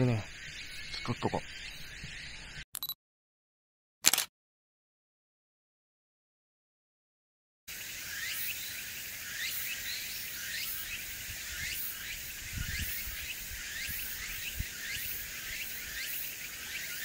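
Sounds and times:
cicadas chirping and buzzing: 0.0s - 2.6s, 7.7s - 17.0s.

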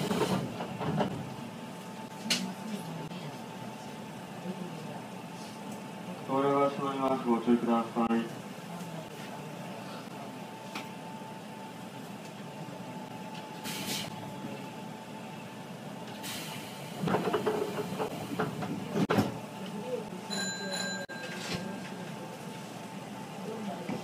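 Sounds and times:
train equipment hum: 0.0s - 20.0s
muffled speech: 19.4s - 24.0s.

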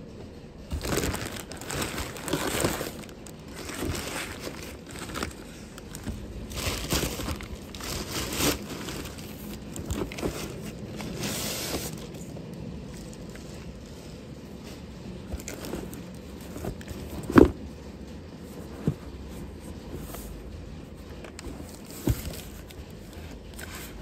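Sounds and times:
plastic mailer bag crinkling: 0.6s - 12.3s.

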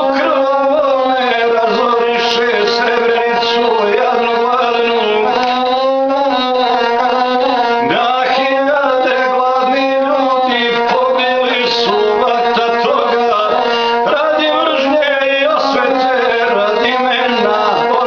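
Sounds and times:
bowed single-string fiddle: 0.0s - 18.0s
man singing: 0.0s - 18.0s.

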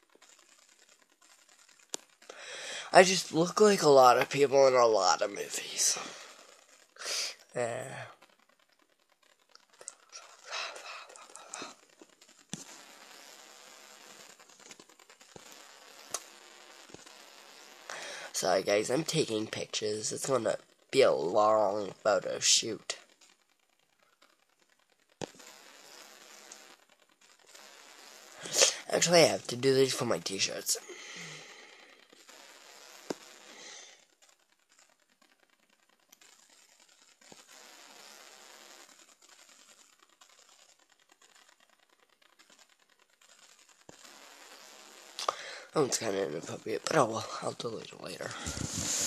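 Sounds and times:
faint microphone hiss: 2.2s - 8.2s, 9.6s - 23.0s, 27.4s - 34.0s, 43.8s - 49.0s
camera handling rustle: 48.4s - 49.0s.

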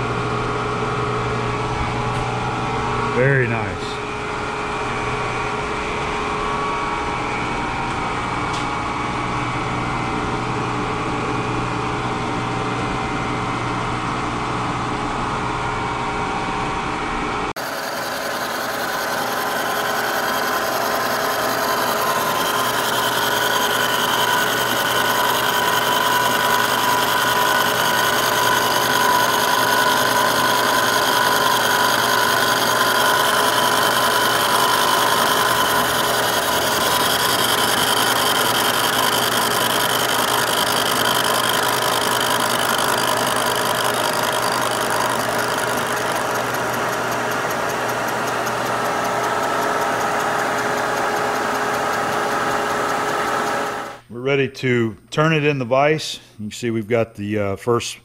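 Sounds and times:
milling machine cutting metal: 17.6s - 54.0s.

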